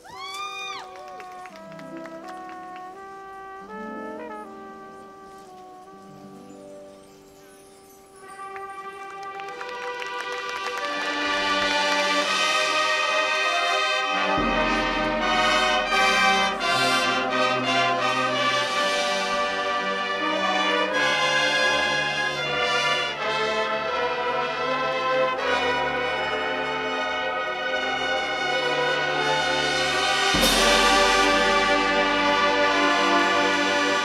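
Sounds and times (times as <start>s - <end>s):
marching band brass chords: 0.9s - 6.9s, 8.2s - 34.0s.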